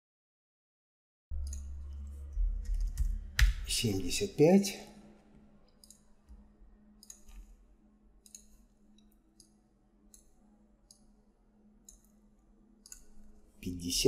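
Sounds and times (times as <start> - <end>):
low steady hum: 1.3 - 14.0
computer mouse and keyboard clicks: 7.0 - 7.6, 8.2 - 9.5.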